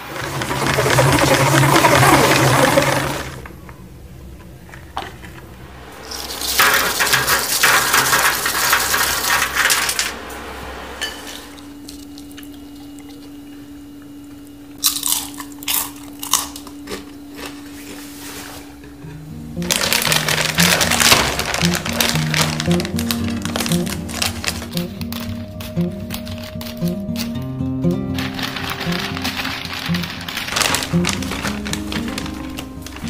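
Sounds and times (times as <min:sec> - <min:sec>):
faint steady hum: 0:00.0 - 0:33.0
loud even hissing: 0:05.3 - 0:12.4
crisp crunches and clicks: 0:19.6 - 0:27.4, 0:28.1 - 0:33.0.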